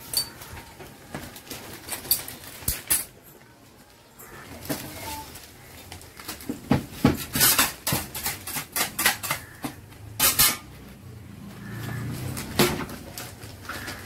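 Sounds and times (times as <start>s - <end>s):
metal scraper knocking and scraping: 7.0s - 10.7s.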